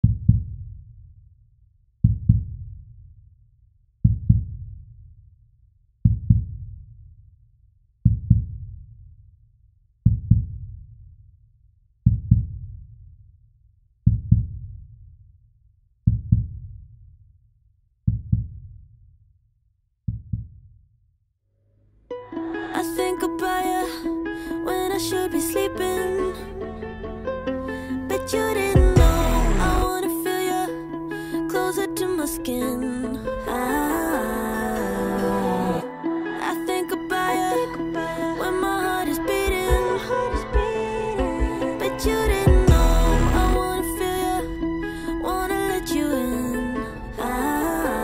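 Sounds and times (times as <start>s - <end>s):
heartbeat low double thumps: 0.0s - 0.8s, 2.0s - 2.6s, 4.0s - 4.7s, 6.0s - 6.7s, 8.1s - 8.7s, 10.1s - 10.7s, 12.1s - 12.7s, 14.1s - 14.7s, 16.1s - 16.7s, 28.8s - 29.9s, 39.3s - 43.8s.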